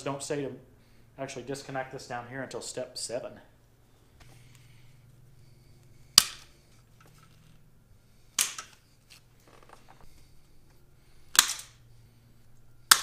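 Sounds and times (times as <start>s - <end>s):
cable ties snapping when cut: 8.4s - 8.8s, 11.3s - 11.8s.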